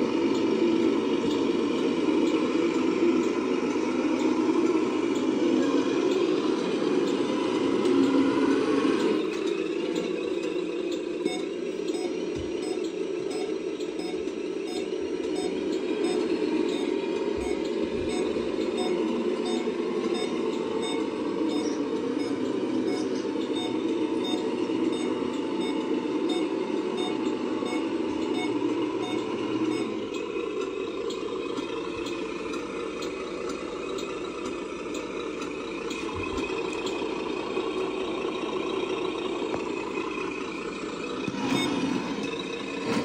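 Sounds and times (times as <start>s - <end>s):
diesel engine sound: 0.0s - 43.0s
reversing beeper: 11.2s - 30.2s, 41.3s - 43.0s.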